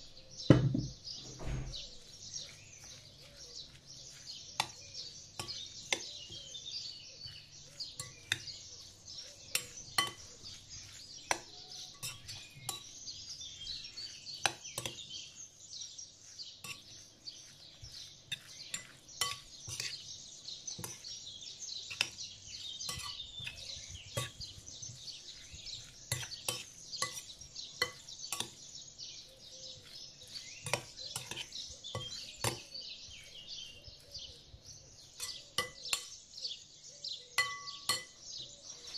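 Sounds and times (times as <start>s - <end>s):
small birds chirping: 0.0s - 38.9s
fork clinking against glass bowl: 4.1s - 6.5s, 7.2s - 15.2s, 16.6s - 20.0s, 20.8s - 21.1s, 22.8s - 28.7s, 29.7s - 32.8s, 35.2s - 36.2s, 37.4s - 38.3s.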